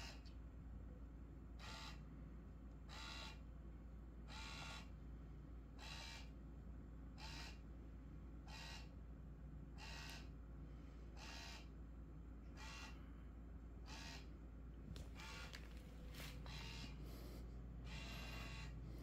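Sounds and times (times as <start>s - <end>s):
small electric motor whirring: 15.2s - 15.8s, 17.9s - 18.7s.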